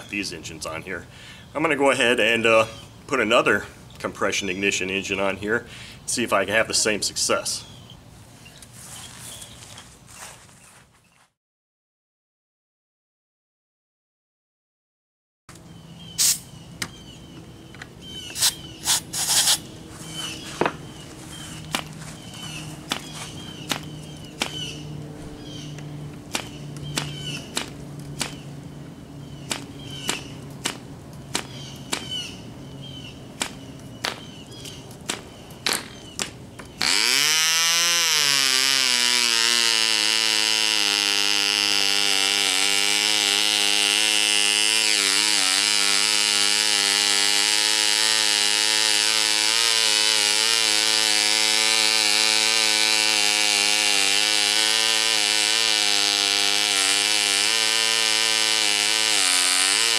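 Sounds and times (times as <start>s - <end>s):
model engine high-pitched buzz: 17.3s - 30.4s, 36.8s - 59.9s.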